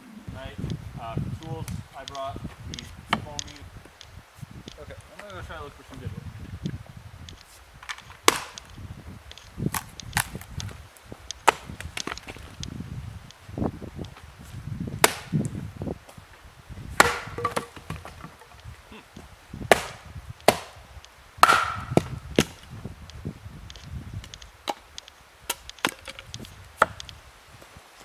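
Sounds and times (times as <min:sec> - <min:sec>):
wood cracking: 0:01.7 - 0:05.4, 0:07.3 - 0:12.7, 0:17.0 - 0:18.9, 0:23.7 - 0:27.2
hatchet splitting firewood: 0:07.3 - 0:12.6, 0:15.0 - 0:15.6, 0:16.9 - 0:18.7, 0:19.7 - 0:22.7, 0:23.7 - 0:27.2.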